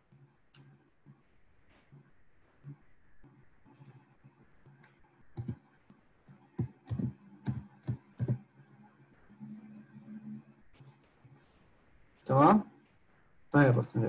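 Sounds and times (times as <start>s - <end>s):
keyboard typing: 3.7s - 4.1s, 4.7s - 8.5s.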